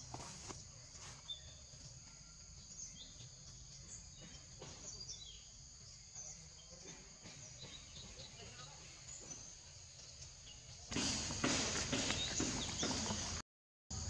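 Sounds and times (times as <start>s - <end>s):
insect drone: 0.0s - 14.0s
bird chirps: 1.0s - 13.4s.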